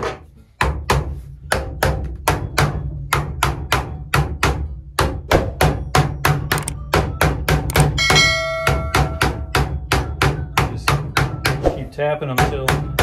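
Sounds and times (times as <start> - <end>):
hammer knocking plastic pipe fittings: 12.2 - 13.0.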